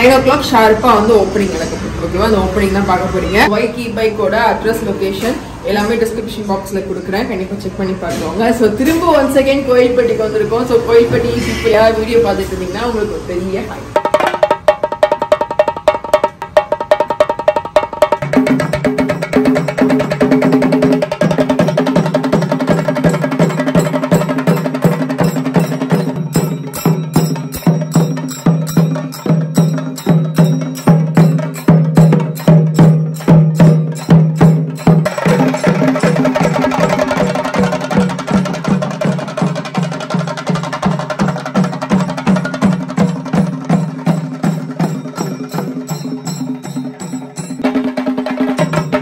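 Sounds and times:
drums beaten with sticks: 13.9 - 49.0.

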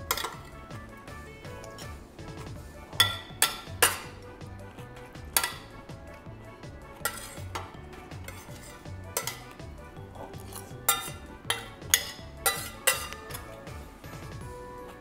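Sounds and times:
metal spoon clinking against pot: 0.0 - 0.6, 2.9 - 4.2, 5.1 - 6.2, 7.0 - 13.7.

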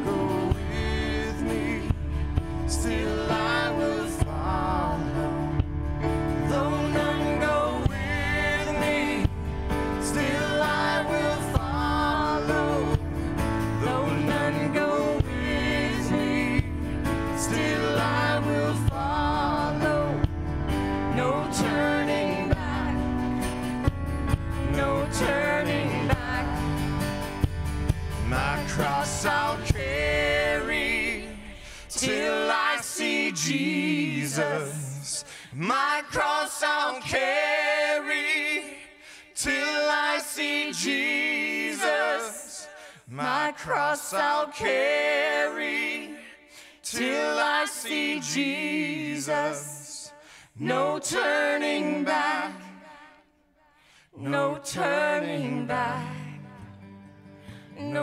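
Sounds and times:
men and women singing together: 0.0 - 27.4, 28.2 - 53.3, 54.1 - 56.8, 57.8 - 58.0
drums: 0.0 - 32.4
keyboard: 0.0 - 34.6
acoustic guitar: 0.0 - 53.1, 53.7 - 58.0.

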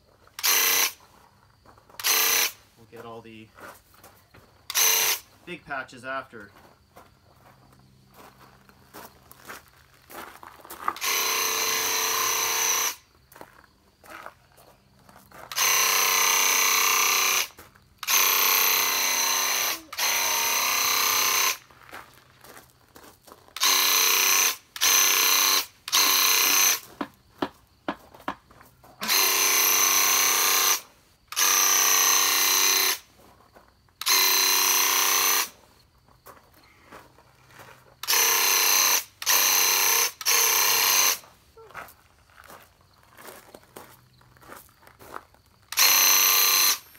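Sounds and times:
paint sprayer pump buzzing: 0.4 - 1.0, 2.0 - 2.6, 4.7 - 5.3, 11.0 - 13.0, 15.5 - 21.6, 23.6 - 26.8, 29.0 - 33.1, 34.0 - 35.6, 38.0 - 41.2, 45.7 - 46.9.

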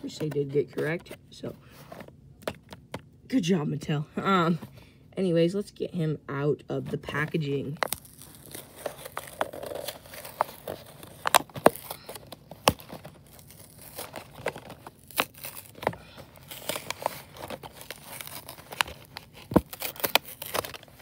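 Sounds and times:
plastic packaging crinkling and tearing: 7.4 - 21.0.

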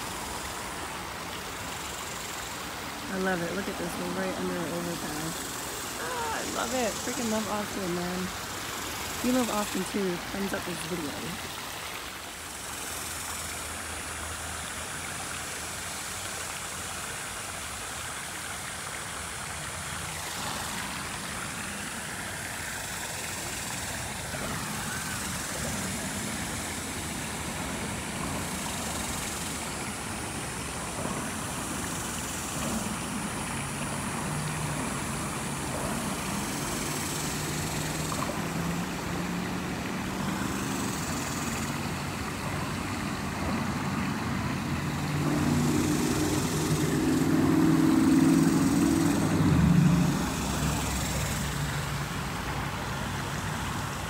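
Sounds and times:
highway traffic droning: 0.0 - 16.3, 18.8 - 54.0
creek water running: 0.0 - 54.0
low engine hum: 18.4 - 54.0.

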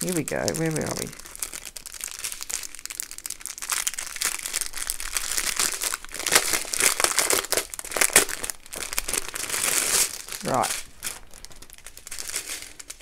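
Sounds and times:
plastic packaging crinkling: 0.0 - 13.0.

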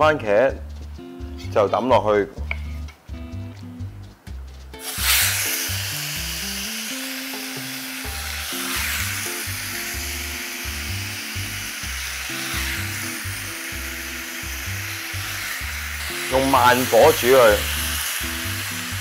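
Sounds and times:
background music with bass: 0.0 - 19.0
sizzling in hot oil: 4.7 - 19.0.

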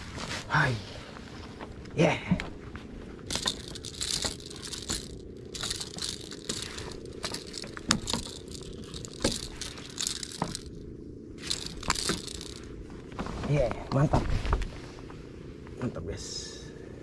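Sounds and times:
fish flopping on wooden planks: 3.3 - 10.8, 11.4 - 12.7
rustling bursts: 3.3 - 10.8, 11.4 - 12.7.

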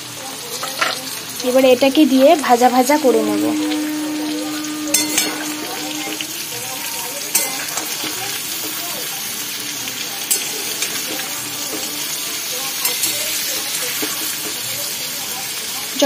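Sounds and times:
food sizzling in hot oil: 0.0 - 16.0
metal spatula knocking pan: 3.0 - 6.2, 7.3 - 8.1.

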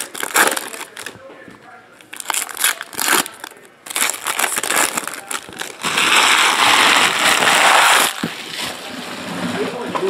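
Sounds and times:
foil wrapper crinkling: 0.0 - 1.2, 2.0 - 8.8.

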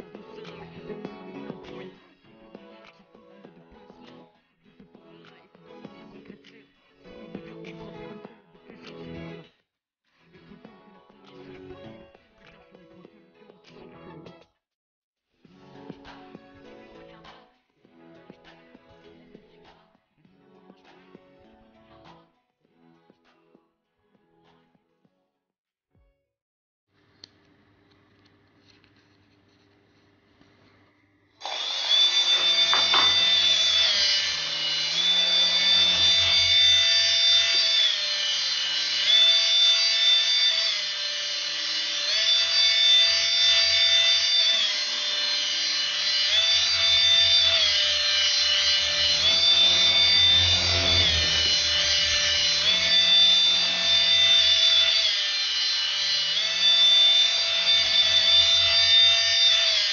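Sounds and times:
toy motor whirring: 31.4 - 59.9.

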